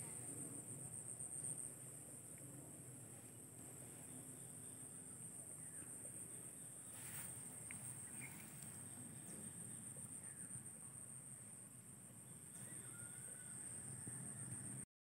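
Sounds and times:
insects chirping chorus: 0.0s - 14.8s.

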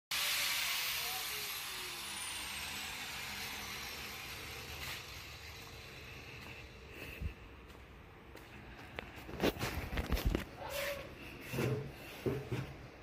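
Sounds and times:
spinning machine winding down: 0.1s - 6.8s.

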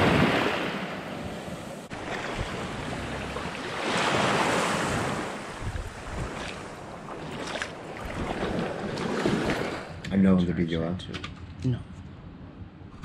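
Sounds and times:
sea water lapping: 0.0s - 10.1s
wind on microphone: 4.6s - 6.8s.

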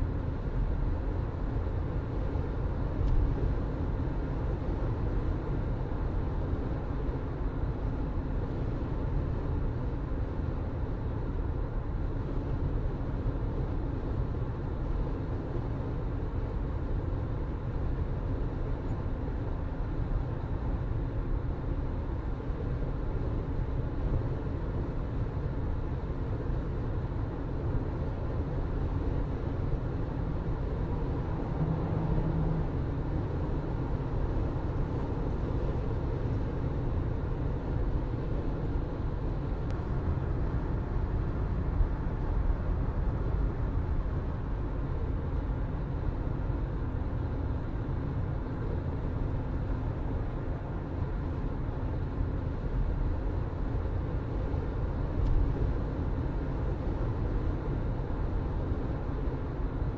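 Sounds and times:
car engine hum: 0.0s - 59.9s
road rumble: 0.0s - 59.9s.

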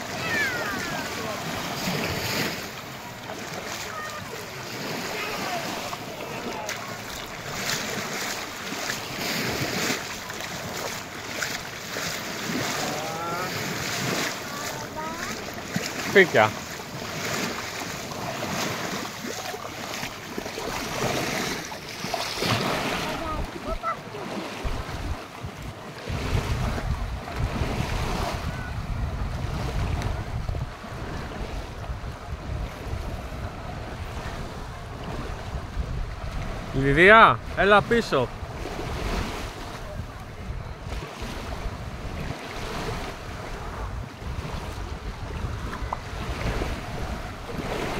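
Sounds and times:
feet splashing through water: 0.0s - 36.7s, 38.3s - 47.9s
small waves lapping on sand: 0.0s - 47.9s
wind buffeting microphone: 20.0s - 37.6s, 38.3s - 47.9s.

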